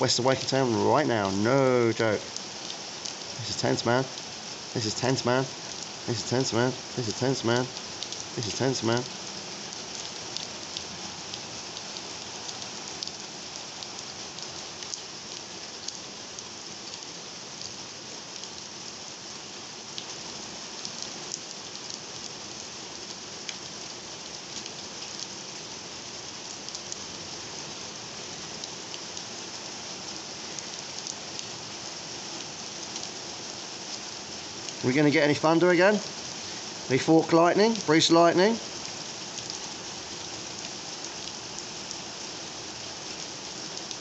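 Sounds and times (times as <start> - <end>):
heavy rain: 0.0 - 44.0
raindrops ticking close by: 0.0 - 44.0.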